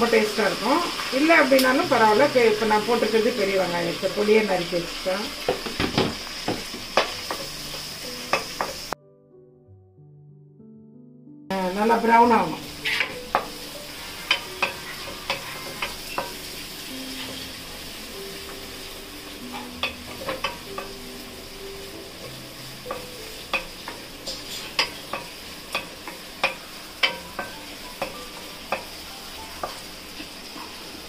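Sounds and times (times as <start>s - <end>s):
onions sizzling in oil: 0.0s - 9.0s, 11.5s - 31.0s
wooden spatula scraping pan: 12.7s - 17.4s.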